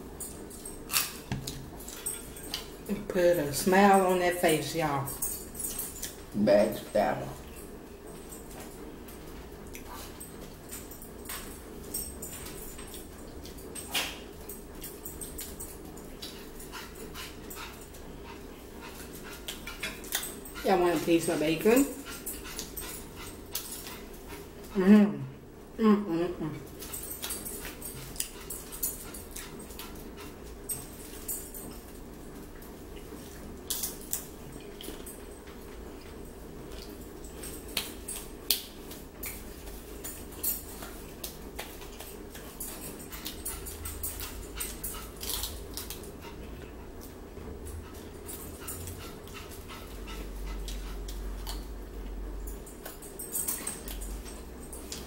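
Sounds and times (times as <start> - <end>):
people eating clicks and smacks: 0.5 - 2.8, 5.3 - 6.2, 12.3 - 18.0, 18.9 - 20.6, 22.1 - 24.1, 26.7 - 31.4, 33.0 - 35.2, 36.0 - 47.2, 48.0 - 55.0.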